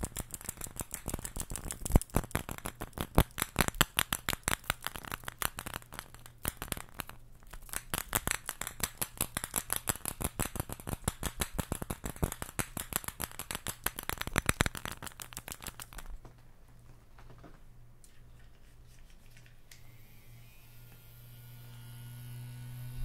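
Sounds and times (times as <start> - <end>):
rattle balls clattering: 0.0 - 16.2.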